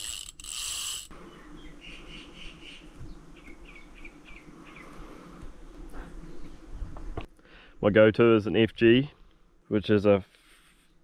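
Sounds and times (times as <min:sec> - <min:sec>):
fishing line buzzing off reel: 0:00.0 - 0:01.1
bees humming: 0:00.7 - 0:07.2.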